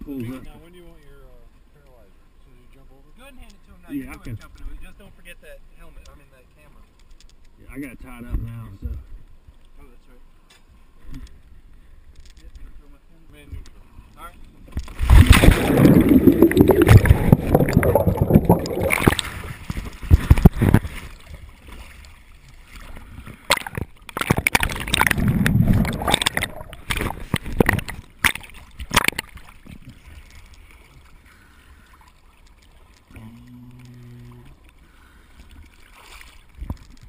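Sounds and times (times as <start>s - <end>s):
waves sloshing: 14.8s - 37.0s
splash into water: 14.9s - 22.1s, 23.5s - 29.6s
underwater rushing and gurgling: 14.9s - 30.2s.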